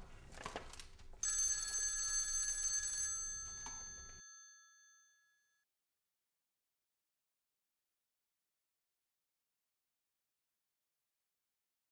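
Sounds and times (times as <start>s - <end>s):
telephone bell ringing: 1.2s - 5.5s.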